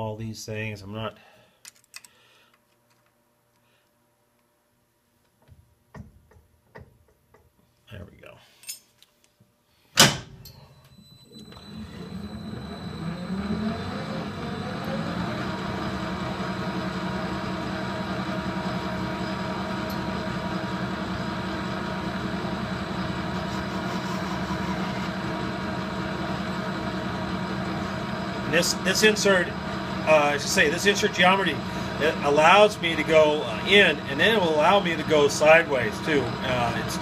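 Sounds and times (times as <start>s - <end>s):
metal lathe running with whine: 11.3s - 37.0s.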